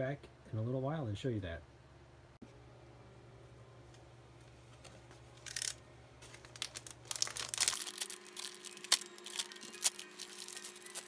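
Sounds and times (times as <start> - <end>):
plastic wrap crinkling: 5.4 - 11.0.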